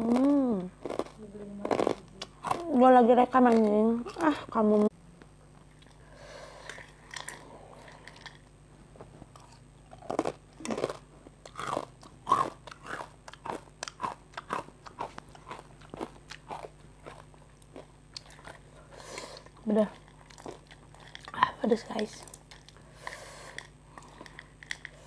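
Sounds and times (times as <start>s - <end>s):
crunching fried chips: 0.0s - 2.7s, 9.4s - 18.7s, 19.5s - 21.4s.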